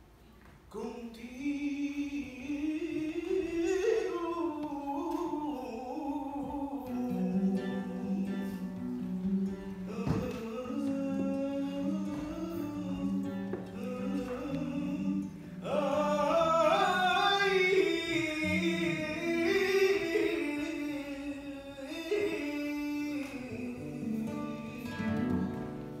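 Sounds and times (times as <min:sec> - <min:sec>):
acoustic guitar: 0:00.0 - 0:26.0
man singing: 0:00.7 - 0:26.0.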